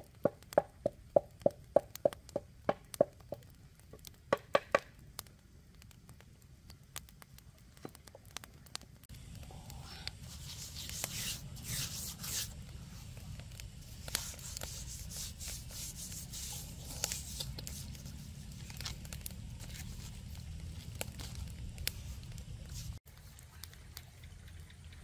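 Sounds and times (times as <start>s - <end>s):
salt grains ticking: 0.0s - 25.0s
salt scraping on fish skin: 9.9s - 13.1s, 13.9s - 23.0s.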